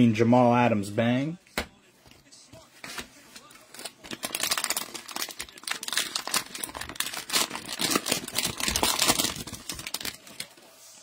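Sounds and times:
cellophane wrapper tearing and crinkling: 0:03.7 - 0:10.6.

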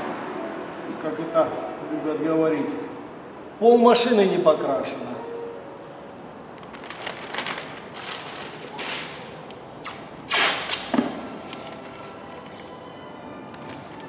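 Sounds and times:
masking tape ripping: 0:06.6 - 0:12.7.

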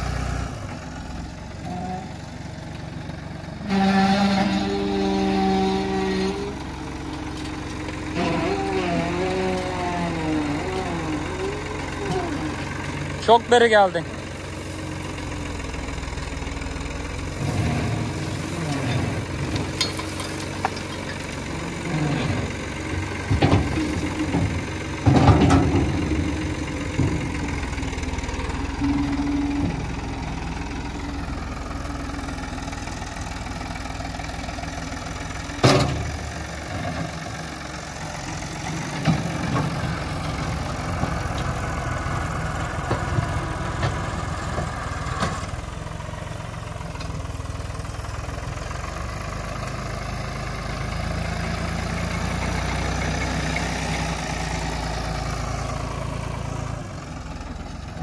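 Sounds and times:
tractor diesel engine running: 0:00.0 - 0:58.0
metal knocks and clanks: 0:18.8 - 0:21.4, 0:23.2 - 0:27.6.

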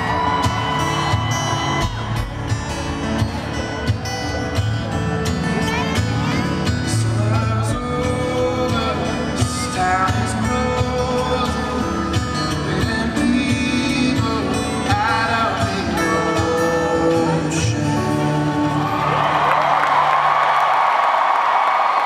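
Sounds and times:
acoustic guitar strumming: 0:00.0 - 0:19.4
man singing: 0:06.6 - 0:19.3.

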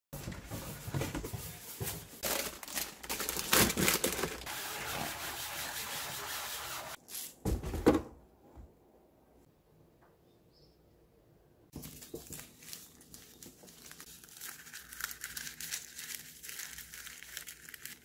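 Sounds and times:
sponge scrubbing plastic: 0:04.2 - 0:07.0.

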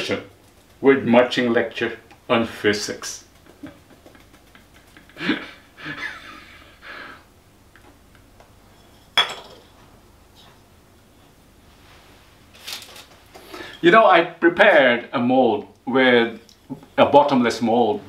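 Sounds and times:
man chuckling: 0:03.3 - 0:07.2.

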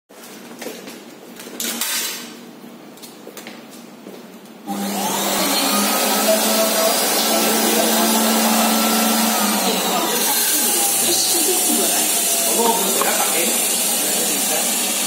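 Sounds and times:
machine motor whirring: 0:04.7 - 0:15.0.

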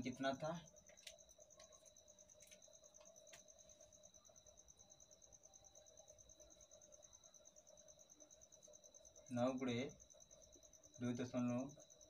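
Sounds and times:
faint cricket chirping: 0:00.0 - 0:12.0.

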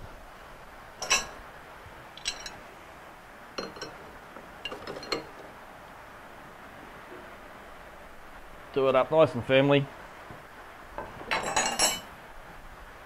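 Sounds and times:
steel spanners clinking: 0:01.0 - 0:01.4, 0:02.1 - 0:02.6, 0:03.6 - 0:05.5, 0:11.3 - 0:12.1.

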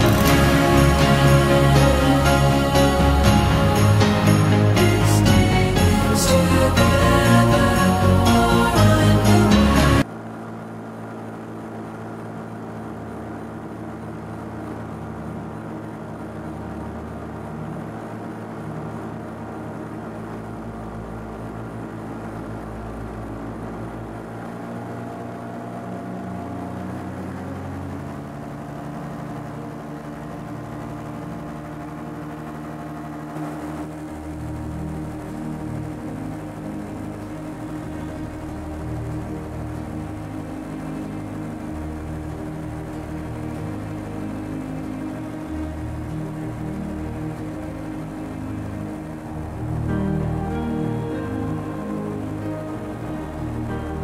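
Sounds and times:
music track: 0:00.0 - 0:10.1, 0:30.8 - 0:54.0
paramotor engine running: 0:00.0 - 0:54.0.

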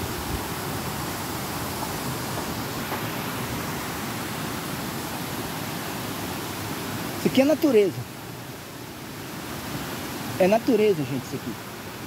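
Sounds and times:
creek water rushing over rocks: 0:00.0 - 0:12.0.

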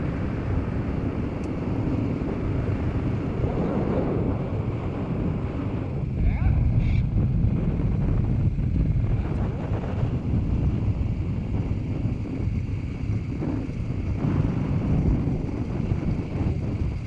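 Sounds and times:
motorcycle engine rumble: 0:00.0 - 0:17.0
wind buffeting microphone: 0:00.0 - 0:17.0.

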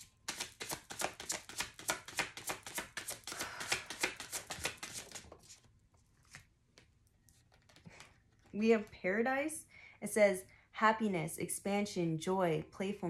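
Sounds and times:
cards being shuffled: 0:00.2 - 0:08.6.

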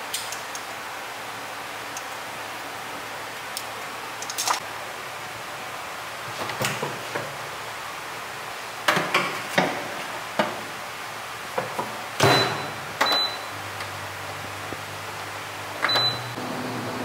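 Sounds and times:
fan humming: 0:00.0 - 0:17.0
oven door shutting: 0:12.2 - 0:13.4.

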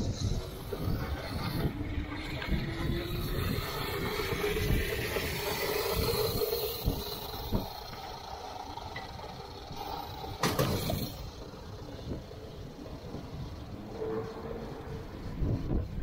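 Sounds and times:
road rumble: 0:00.0 - 0:16.0
wind noise: 0:00.0 - 0:16.0.

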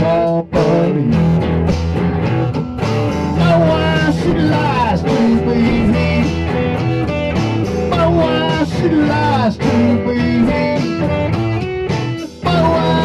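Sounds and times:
bending lead guitar notes: 0:00.0 - 0:13.0
blues-rock band music: 0:00.0 - 0:13.0
steady bass: 0:00.0 - 0:13.0.

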